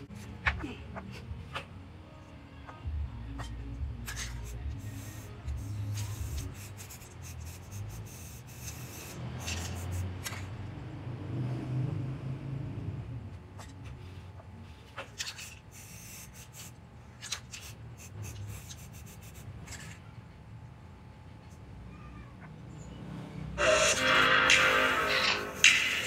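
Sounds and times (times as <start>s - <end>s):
spray-paint can hissing: 4.0s - 10.4s, 15.2s - 19.4s, 24.4s - 26.0s.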